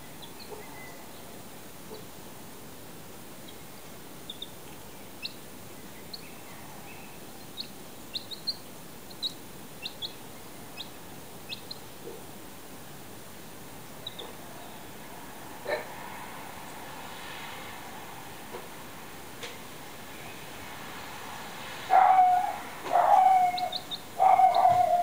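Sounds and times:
chick peeping: 0.2 - 1.0, 4.2 - 5.4, 7.4 - 12.3, 14.0 - 14.8, 22.0 - 25.0.

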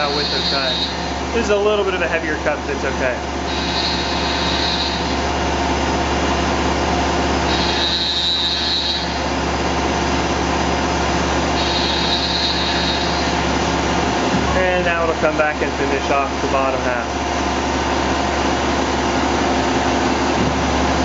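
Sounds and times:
high squeal: 0.0 - 1.1, 3.5 - 5.2, 7.5 - 9.2, 11.6 - 13.4
milling machine cutting metal: 0.0 - 9.9, 11.2 - 17.0.

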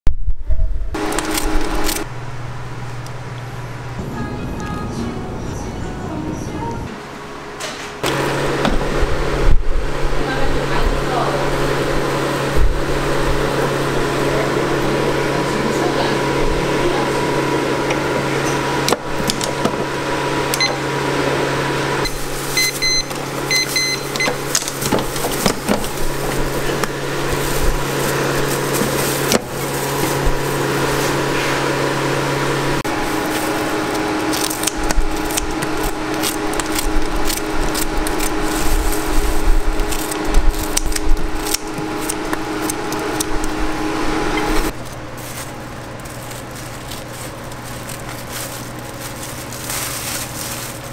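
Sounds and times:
electrical machine hum: 0.1 - 50.9
short electronic beeps: 22.6 - 24.4.

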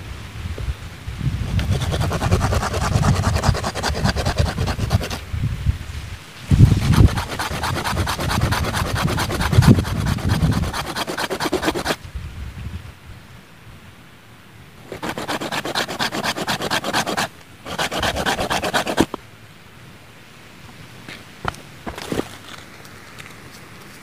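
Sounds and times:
hand saw rasping through root: 1.5 - 5.2, 6.7 - 12.0, 14.9 - 19.2, 21.4 - 22.3.

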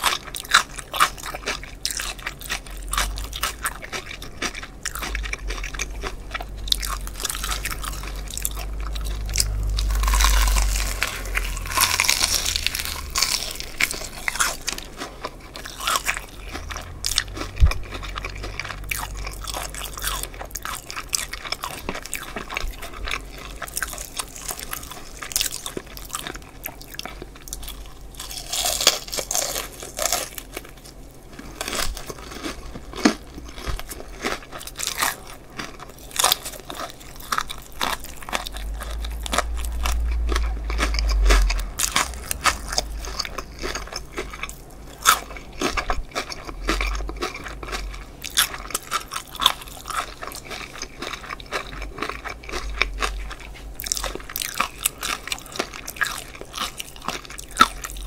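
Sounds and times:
crunching fried chicken: 0.0 - 58.0
wet chewing: 0.0 - 58.0
low rumble: 2.4 - 26.2, 37.4 - 50.0.

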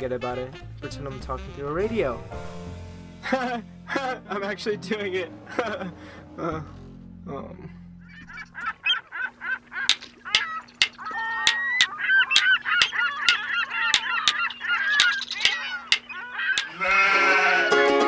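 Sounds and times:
goose-like honking calls: 8.1 - 17.9
steady clicking beat: 9.9 - 16.8.

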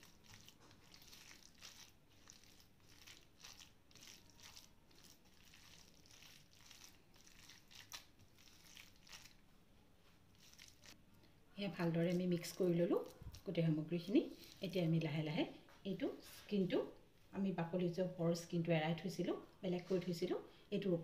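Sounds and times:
hand kneading wet mixture on steel: 0.0 - 11.0, 11.6 - 15.2.

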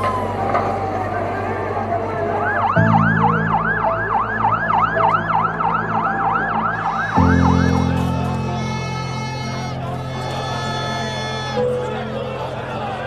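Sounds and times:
low sustained music notes: 0.0 - 13.0
siren yelping: 2.2 - 12.0.

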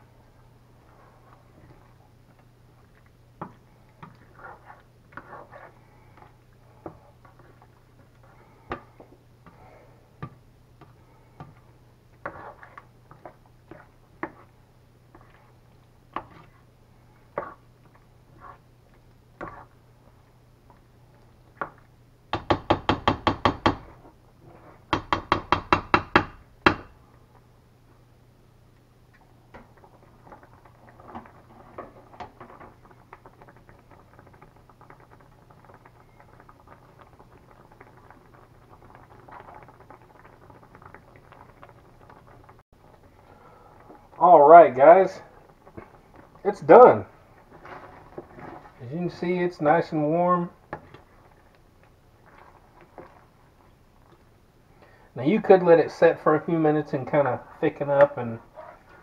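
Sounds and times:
spoon stirring pasta in sauce: 0.8 - 21.9, 43.8 - 54.4.

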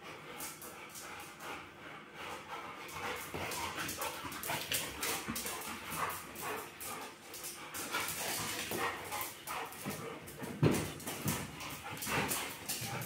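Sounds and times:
claws clicking on tile floor: 3.0 - 13.0.

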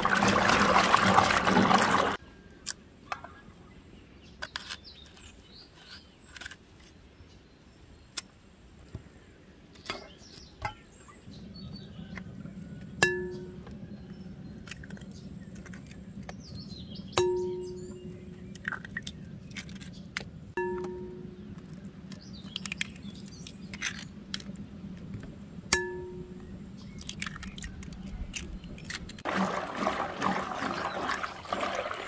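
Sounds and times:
water splashing in a basin: 0.0 - 2.2, 29.2 - 32.0
bird chirps: 9.8 - 23.8
low steady hum: 10.6 - 32.0.

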